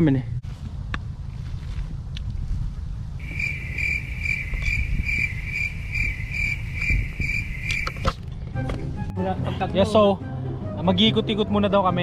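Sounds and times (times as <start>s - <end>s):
wind rumble on microphone: 0.0s - 9.1s
cricket chirping: 3.2s - 8.1s.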